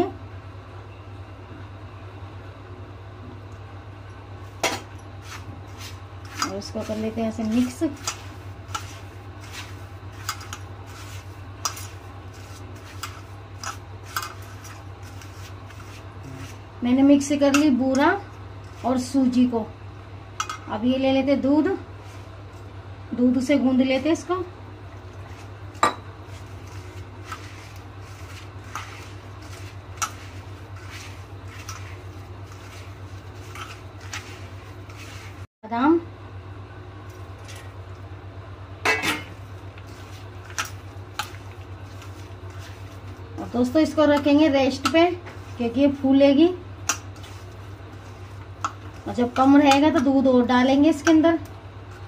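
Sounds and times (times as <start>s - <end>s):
steady low hum: 0.0s - 52.0s
hand rubbing gritty mixture in bowl: 4.4s - 19.5s, 21.5s - 22.8s, 23.4s - 35.5s, 39.4s - 52.0s.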